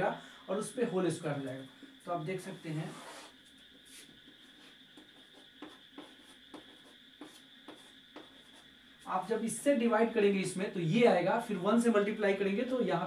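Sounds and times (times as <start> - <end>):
chalk scratching on chalkboard: 2.9 - 8.7.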